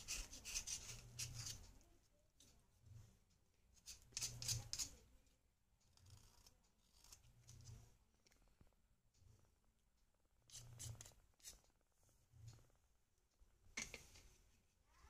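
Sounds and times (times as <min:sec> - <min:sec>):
knife blade scraping: 0:03.9 - 0:05.0.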